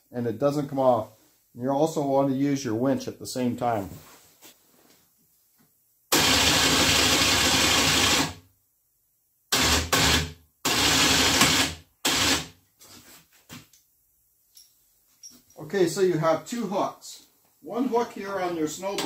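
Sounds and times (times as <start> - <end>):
electric winch motor running: 6.1 - 8.3.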